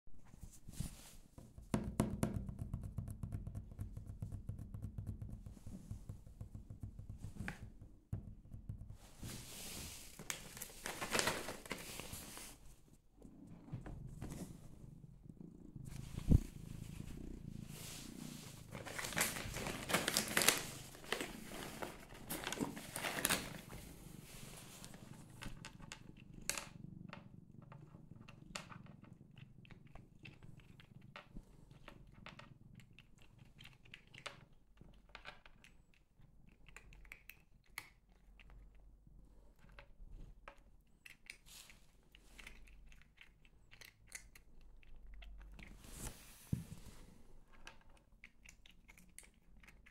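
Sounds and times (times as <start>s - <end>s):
cat purring: 2.4s - 49.9s
crinkling: 10.0s - 12.6s, 18.5s - 23.9s
cat crunching dry treats: 18.8s - 23.6s.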